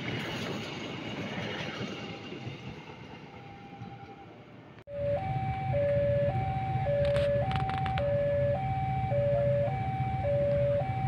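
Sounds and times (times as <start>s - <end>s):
two-tone electronic warning alarm: 4.9s - 11.0s.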